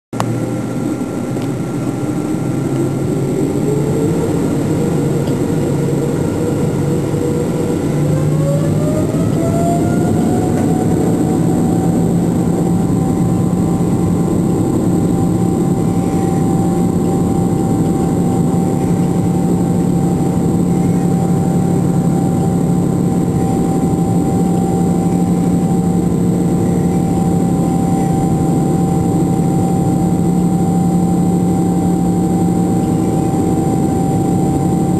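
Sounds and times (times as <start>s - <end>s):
loud even engine drone: 0.1s - 34.9s
jet engine whine rising: 0.2s - 34.9s.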